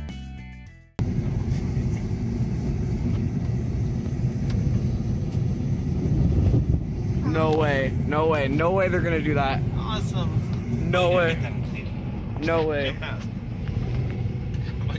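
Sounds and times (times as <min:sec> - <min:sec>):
background music: 0:00.0 - 0:00.9.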